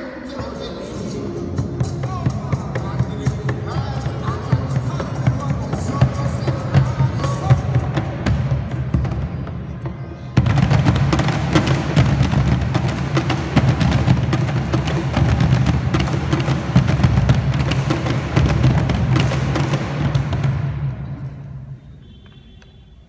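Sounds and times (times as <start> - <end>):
cajon drums played together: 1.5 - 21.0.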